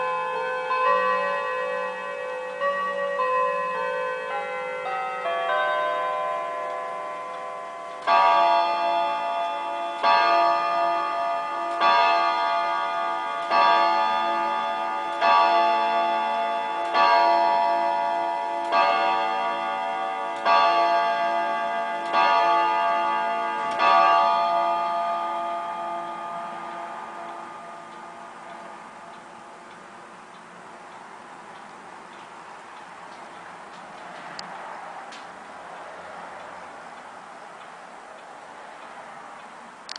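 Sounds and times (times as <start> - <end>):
clock chime tune: 0.0 - 29.5
clock striking ringing chords: 0.0 - 31.0.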